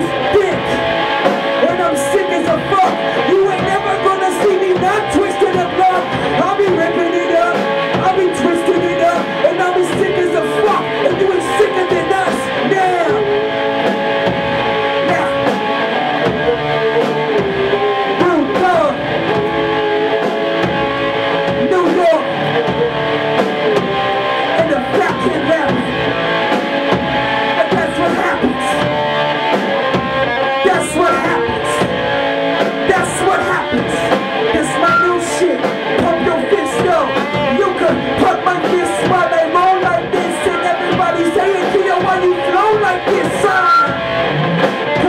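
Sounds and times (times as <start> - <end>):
person rapping into microphone: 0.0 - 1.0, 1.6 - 13.4, 14.9 - 15.6, 18.2 - 19.1, 21.4 - 23.0, 24.4 - 26.1, 27.4 - 28.9, 30.5 - 32.0, 32.8 - 44.1
drum kit with cymbal hits: 0.0 - 45.0
electric guitar: 0.0 - 45.0.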